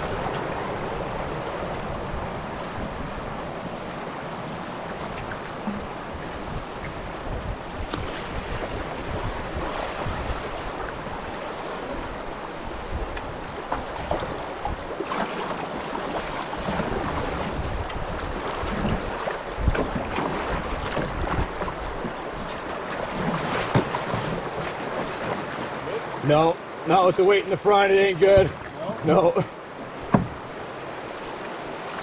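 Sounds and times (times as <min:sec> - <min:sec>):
water slapping against hull: 0:00.0 - 0:26.3, 0:27.8 - 0:29.2, 0:29.8 - 0:32.0
river rapids rushing: 0:00.0 - 0:32.0
wind buffeting microphone: 0:05.6 - 0:13.4.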